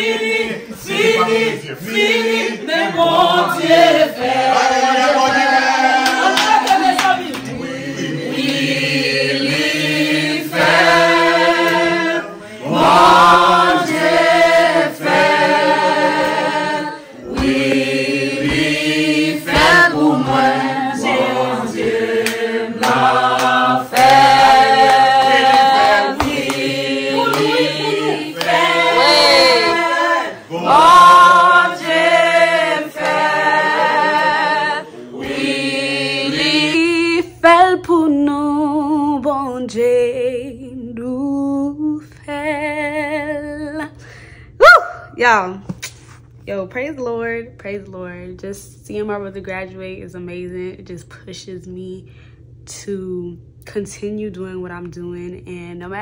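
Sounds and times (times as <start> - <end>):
choir singing: 0.0 - 37.3.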